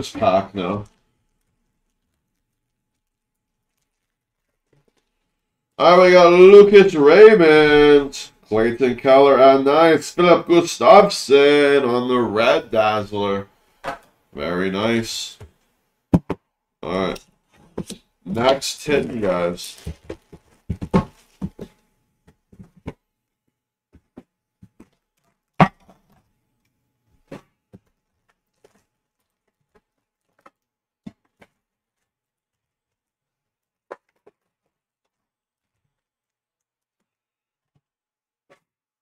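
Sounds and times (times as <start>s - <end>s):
hands handling card packs: 17.0s - 23.0s.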